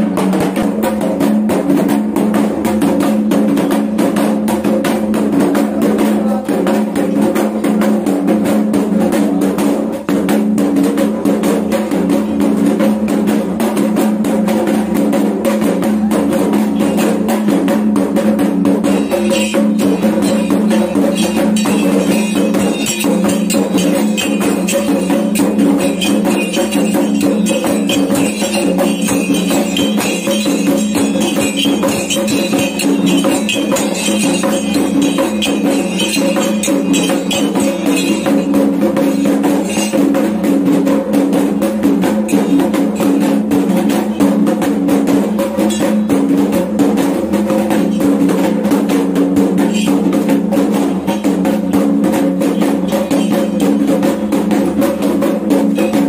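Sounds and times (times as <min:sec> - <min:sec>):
fast hand drumming: 0:00.0 - 0:56.0
steady ringing tone: 0:18.8 - 0:40.4
metallic jingling: 0:18.8 - 0:44.6, 0:49.4 - 0:51.4, 0:52.1 - 0:54.3.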